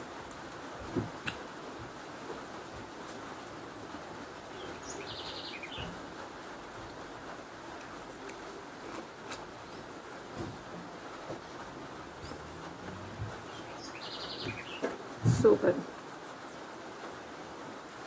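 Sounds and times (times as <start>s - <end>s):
background hiss: 0.0s - 18.0s
soft clicks and thuds: 0.8s - 2.0s, 10.3s - 13.4s.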